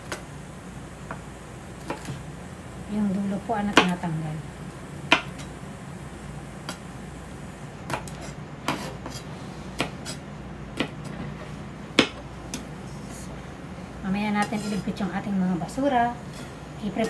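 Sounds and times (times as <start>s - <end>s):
knife chopping on cutting board: 1.8s - 2.1s, 7.9s - 9.2s, 9.8s - 10.2s, 10.8s - 11.0s, 12.0s - 12.2s.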